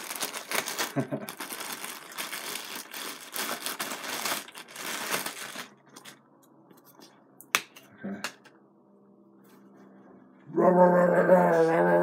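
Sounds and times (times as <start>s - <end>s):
plastic wrapping crinkling and tearing: 0.0s - 6.2s.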